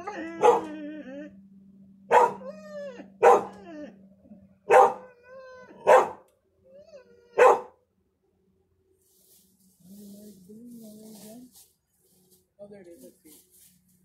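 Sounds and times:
dog whining: 0.0 - 1.4, 2.1 - 7.7
dog barking: 0.4 - 0.8, 2.1 - 2.5, 3.2 - 3.7, 4.7 - 5.1, 5.8 - 6.3, 7.4 - 7.8.

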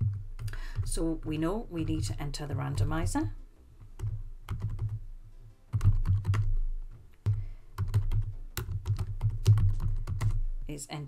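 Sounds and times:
keyboard typing: 3.9 - 5.0, 5.7 - 10.4.

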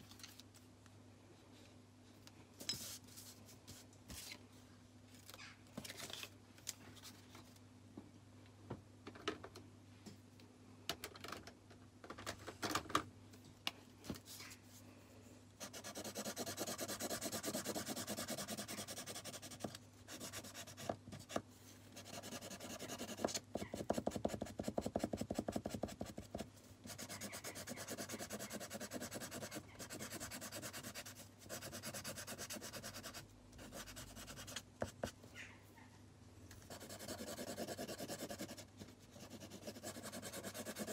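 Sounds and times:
marker scribbling on paper: 15.6 - 20.9, 22.0 - 35.1, 36.7 - 38.6, 39.2 - 40.9.

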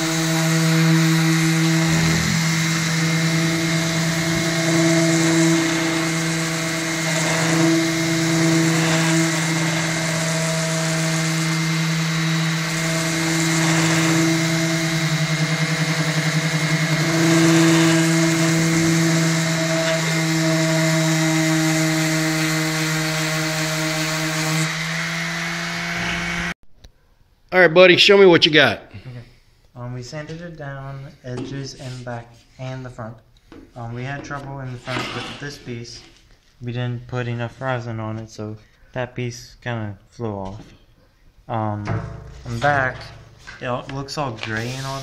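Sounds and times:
orbital sander running: 0.0 - 26.6.

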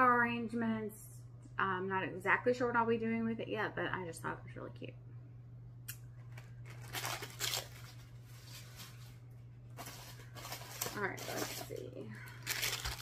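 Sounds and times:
faint steady low hum: 0.0 - 13.0
plastic packaging rustling: 6.2 - 13.0.

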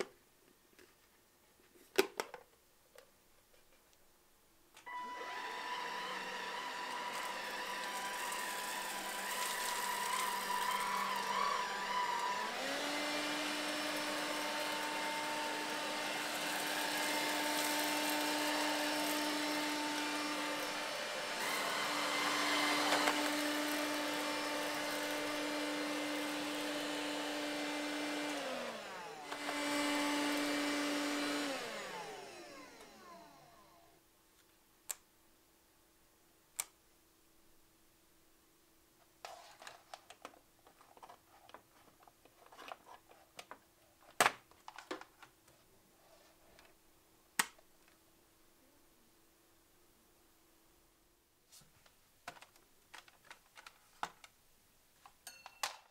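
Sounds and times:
vacuum motor whining: 4.9 - 33.8.

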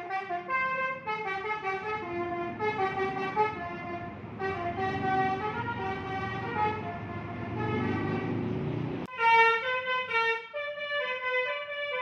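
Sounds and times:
musical bus horn melody: 0.0 - 12.0
bus engine running: 0.3 - 9.1.

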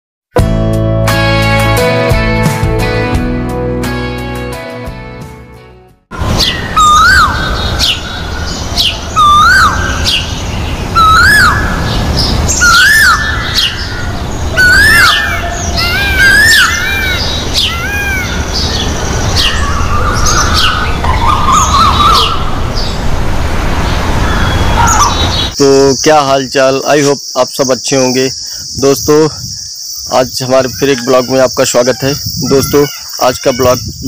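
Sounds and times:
peafowl calling: 6.3 - 22.7, 24.2 - 25.6, 30.5 - 33.8.

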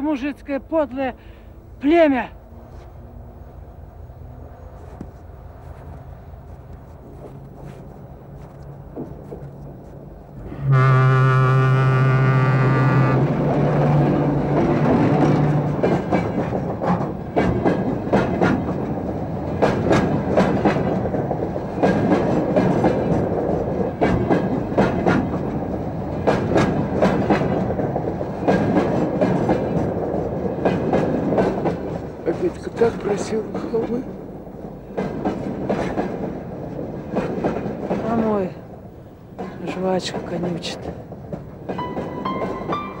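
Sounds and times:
freight train rumbling: 0.0 - 43.0
wheels clacking on rail joints: 4.8 - 10.5, 13.1 - 43.0
train horn blast: 10.4 - 13.5.

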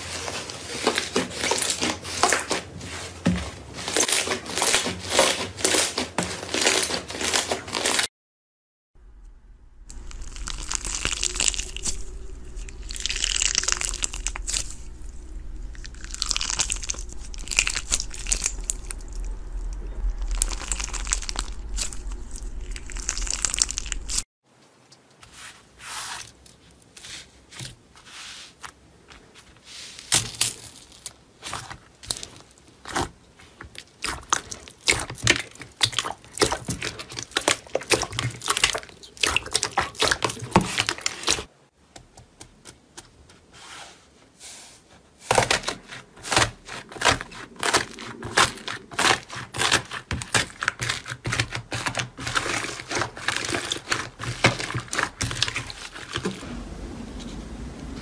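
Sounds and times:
crunchy slime crackling: 0.0 - 8.1, 9.9 - 24.2, 30.1 - 41.5, 45.3 - 58.0
steady low hum: 9.0 - 24.2.

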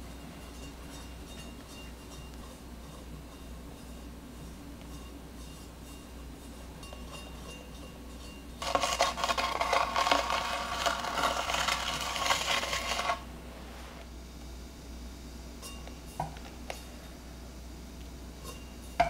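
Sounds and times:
spatula scraping cream on cake: 8.6 - 13.3.

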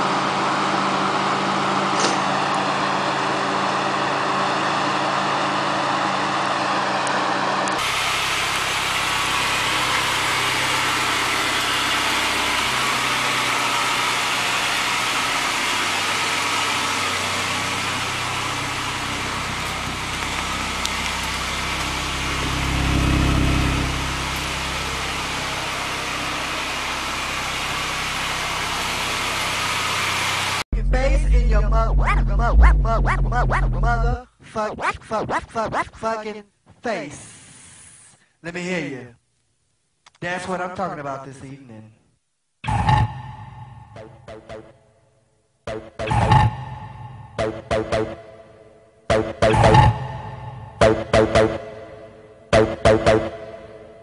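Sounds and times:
car engine droning: 0.0 - 34.2
car engine idling: 7.8 - 34.2.

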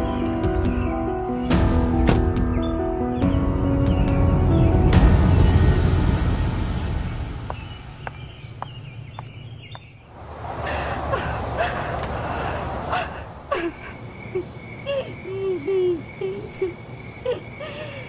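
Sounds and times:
low musical drone: 0.0 - 9.2
young woman sobbing: 10.7 - 18.0.

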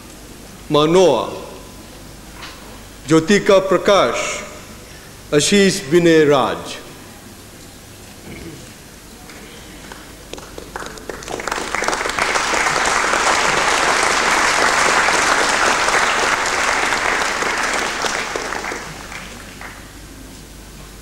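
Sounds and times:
audience applauding: 9.8 - 20.0.

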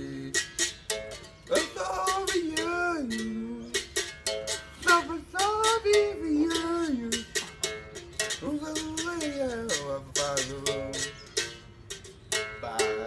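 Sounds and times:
man singing: 0.0 - 0.6, 1.5 - 4.0, 4.8 - 7.4, 8.4 - 11.3, 12.6 - 13.0
berimbau wire strikes: 0.3 - 13.0.

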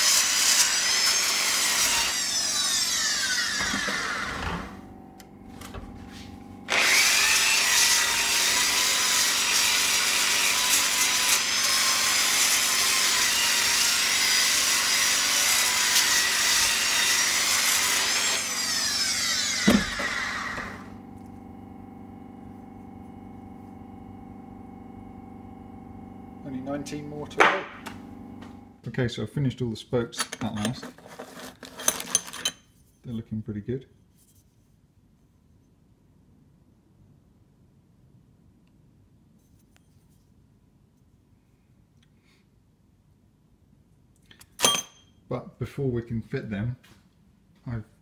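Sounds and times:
drill grinding metal: 0.0 - 5.0, 5.6 - 21.2
drill whine winding down: 0.0 - 28.8
drill stopping click: 6.7 - 8.7.

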